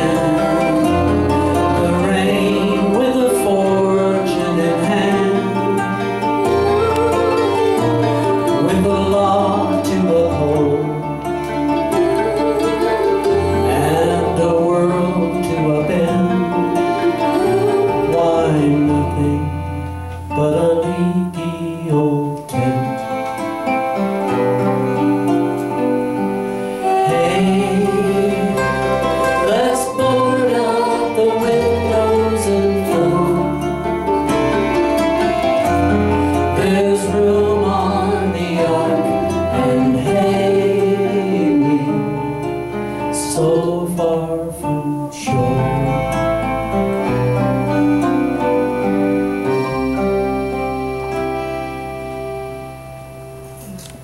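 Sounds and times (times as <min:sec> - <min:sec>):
woman singing long notes: 0:00.0 - 0:19.6, 0:26.6 - 0:34.0
acoustic guitar: 0:00.0 - 0:54.0
bass: 0:00.0 - 0:54.0
keyboard: 0:00.0 - 0:54.0
mandolin: 0:00.0 - 0:54.0.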